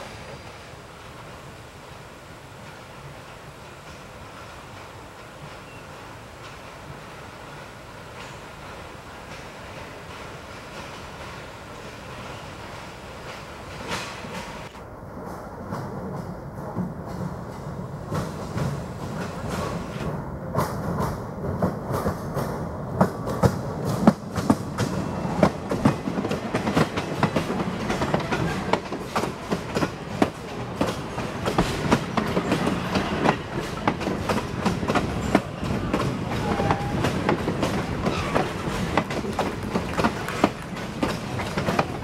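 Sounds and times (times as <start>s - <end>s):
train cars rumbling past: 0.0s - 42.0s
wheels clicking over rail joints: 23.0s - 42.0s.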